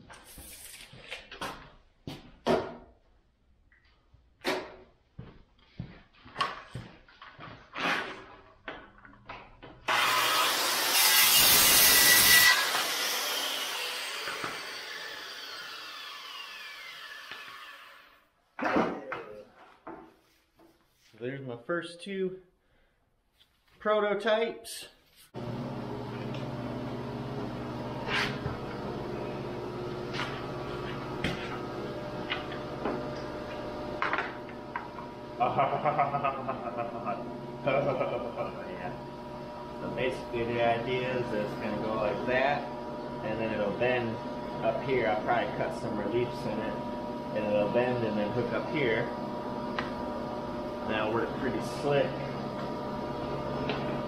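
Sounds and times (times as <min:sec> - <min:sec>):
circular saw cutting pipe: 0:09.9 - 0:18.2, 0:27.8 - 0:35.7, 0:37.0 - 0:54.0
saw blade spinning down whine: 0:09.9 - 0:18.2.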